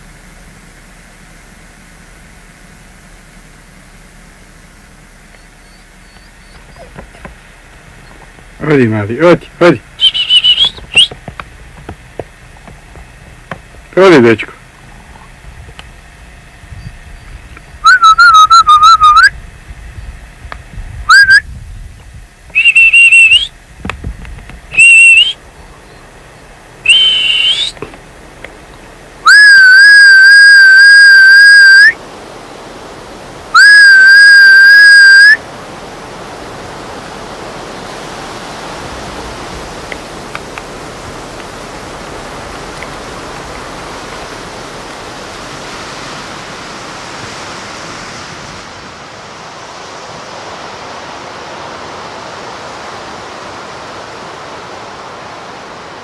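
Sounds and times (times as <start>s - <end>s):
steady rushing noise: 6.6s - 56.0s
person whistling: 10.0s - 11.1s, 22.6s - 23.5s, 26.9s - 27.8s.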